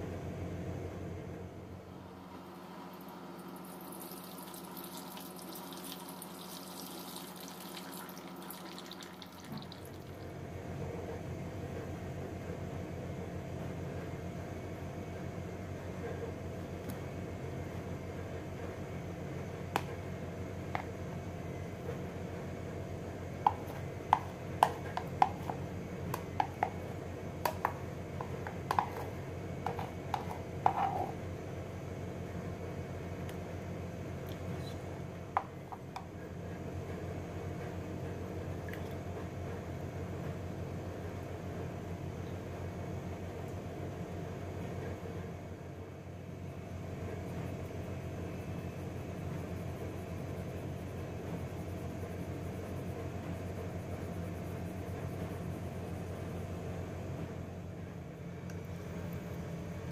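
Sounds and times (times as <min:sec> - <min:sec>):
steady low hum: 0:00.0 - 0:59.9
water pouring into metal bowl: 0:03.6 - 0:10.3.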